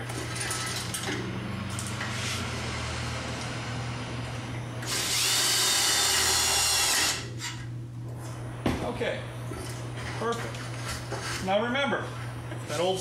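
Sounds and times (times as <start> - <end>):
cordless drill whining: 4.8 - 7.2.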